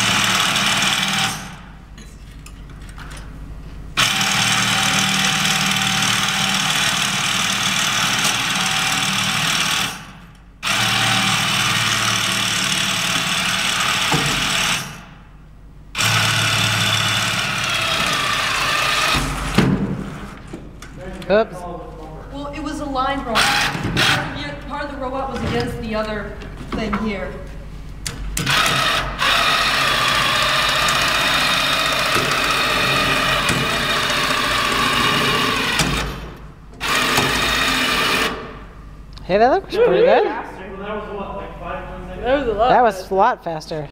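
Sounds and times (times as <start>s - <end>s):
robot electric motors running: 0.0s - 1.7s, 4.0s - 15.2s, 15.9s - 20.6s, 23.3s - 24.6s, 28.4s - 38.6s.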